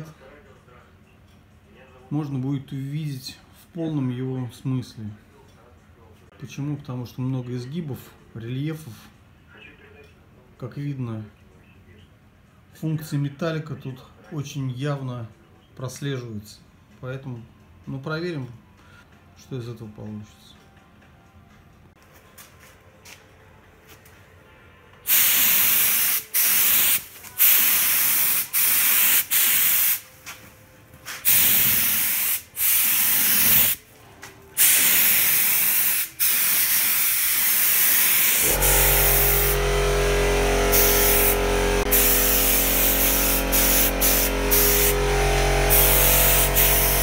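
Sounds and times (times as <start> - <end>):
spray gun hissing: 25.1 - 30.0, 31.2 - 33.8, 34.6 - 47.0
low machine hum: 38.4 - 47.0.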